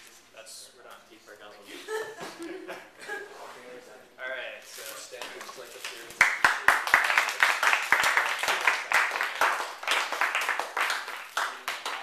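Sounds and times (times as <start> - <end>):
audience applauding: 6.1 - 12.0.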